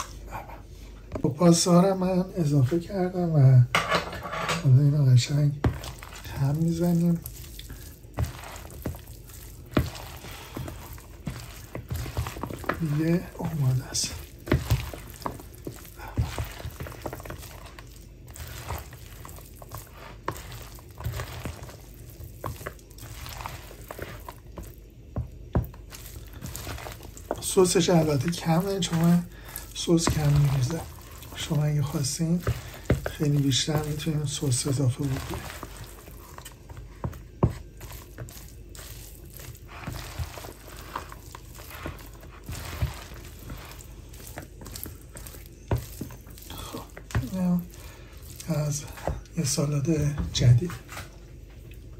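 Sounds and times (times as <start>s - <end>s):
spatula squishing pasta salad: 4.6s - 51.9s.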